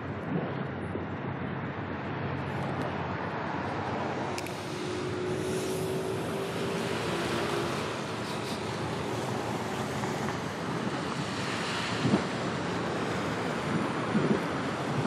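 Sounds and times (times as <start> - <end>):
wind: 0.0 - 15.0
distant ship engines rumbling: 3.3 - 15.0.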